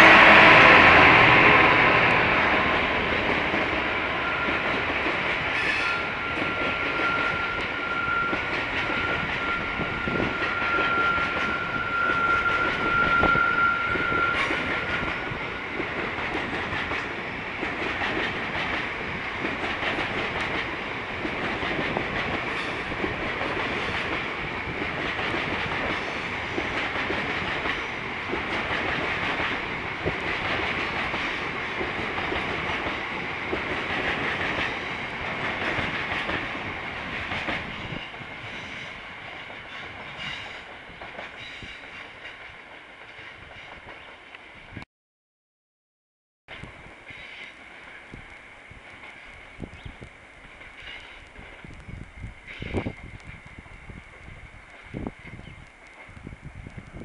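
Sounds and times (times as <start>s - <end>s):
freight train rolling past: 0.0s - 44.8s, 46.5s - 57.0s
thin high whine: 5.6s - 15.2s.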